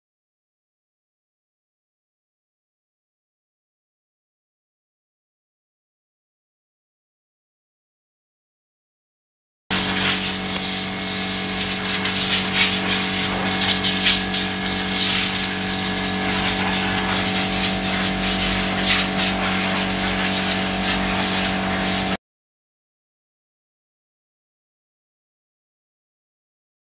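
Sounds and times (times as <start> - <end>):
compressed air hissing: 9.7 - 22.2
steady mechanical hum: 9.7 - 22.2.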